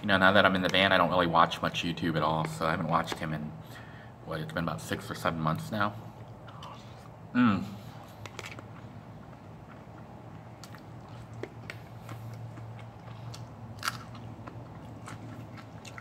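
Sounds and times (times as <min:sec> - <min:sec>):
chewing food: 0:08.1 - 0:16.0.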